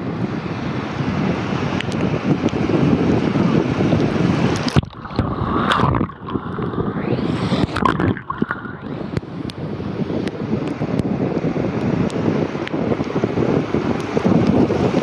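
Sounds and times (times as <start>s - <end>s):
ocean surf: 0.0s - 15.0s
wind noise: 0.0s - 15.0s
muffled underwater blips: 4.6s - 9.3s.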